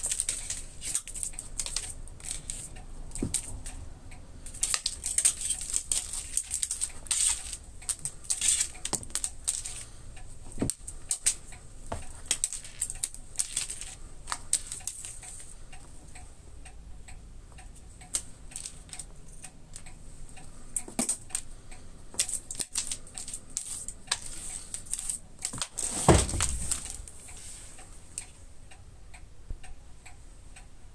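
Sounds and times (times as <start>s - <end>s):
toy clicking on wooden floor: 0.0s - 3.8s, 4.4s - 15.5s, 18.0s - 20.0s, 22.1s - 27.2s.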